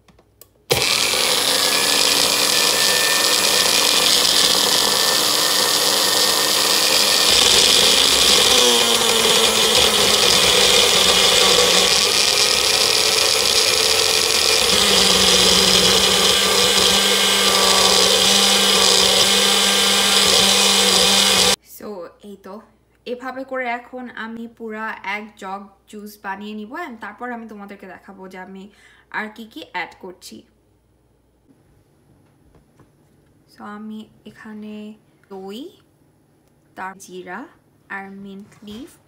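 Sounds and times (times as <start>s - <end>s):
blender motor running: 0.7s - 21.6s.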